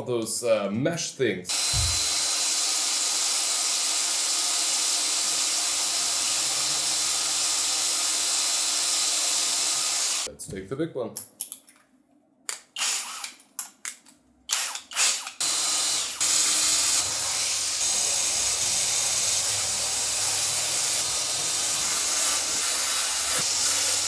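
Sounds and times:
cordless drill boring: 1.5 - 10.3, 12.8 - 13.4, 14.5 - 24.0
drill chuck clicks and whirs: 12.5 - 16.2.

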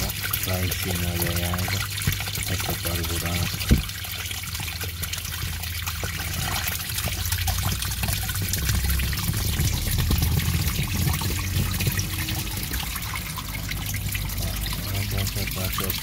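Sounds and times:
water spraying and trickling: 0.0 - 16.0.

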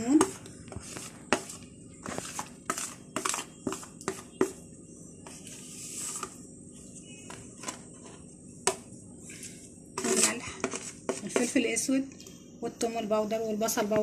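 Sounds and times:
metal spoon scraping a plate: 10.0 - 11.6.

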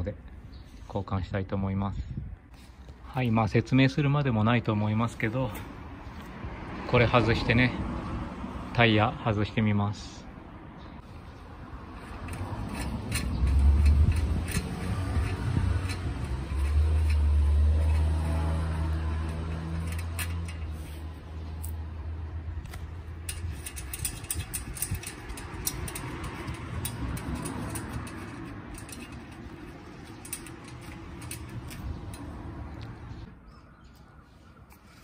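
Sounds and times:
vehicle engine humming: 10.3 - 33.5
light metal clicks and knocks: 12.0 - 20.8, 22.7 - 33.0.

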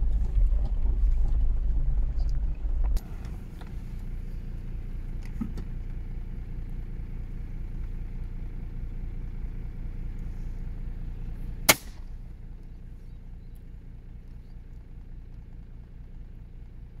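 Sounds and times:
vehicle engine idling: 0.0 - 17.0
shotgun shot: 11.7 - 12.2.

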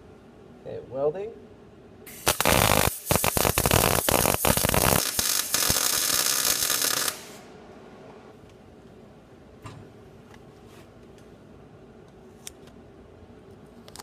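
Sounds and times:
welding arc crackling: 2.1 - 7.5.

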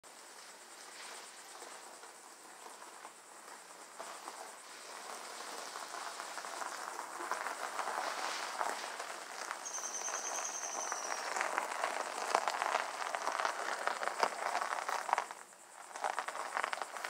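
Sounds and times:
high insect trill: 0.1 - 17.0
tires crunching over gravel: 0.4 - 17.0.

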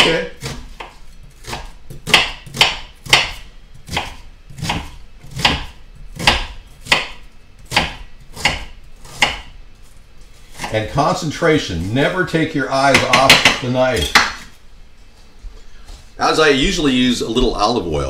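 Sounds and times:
knife chopping on wooden board: 0.0 - 9.6, 10.5 - 10.7, 12.9 - 14.6.

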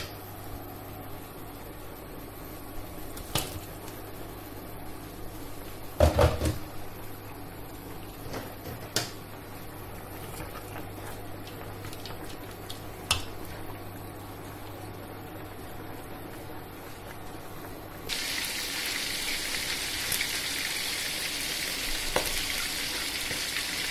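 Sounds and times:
steady low hum: 0.0 - 20.1.

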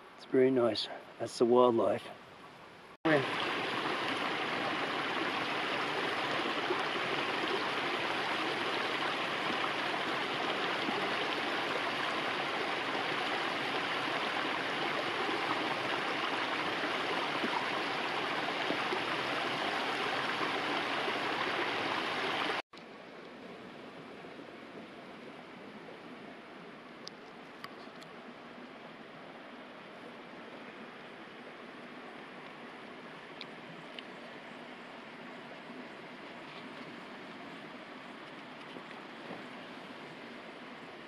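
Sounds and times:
quiet steady hiss: 0.0 - 19.5
creek water rushing over rocks: 3.1 - 22.6.

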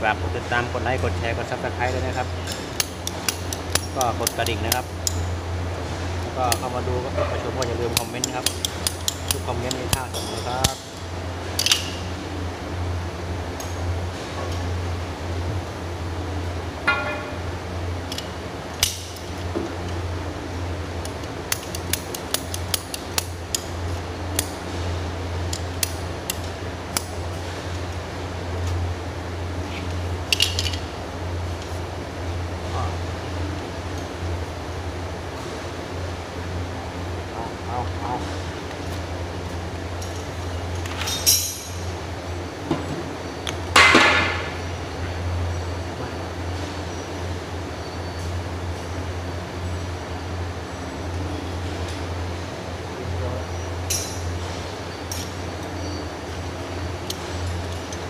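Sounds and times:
steady low hum: 0.0 - 58.0
ratchet pipe cutter clicking: 2.5 - 5.3, 7.6 - 10.8, 21.0 - 23.7, 25.4 - 27.2
pipe fittings clinking: 16.8 - 17.5.

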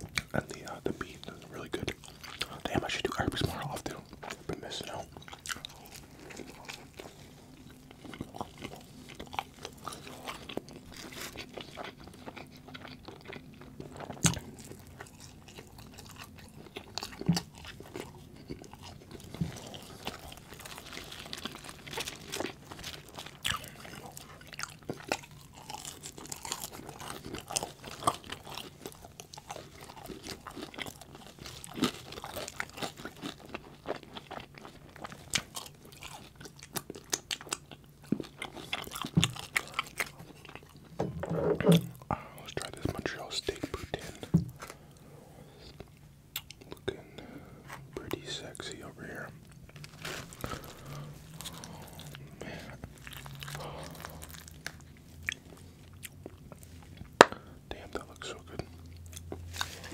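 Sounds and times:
wet chewing and smacking: 0.0 - 59.9
crunchy bites: 49.7 - 56.4.

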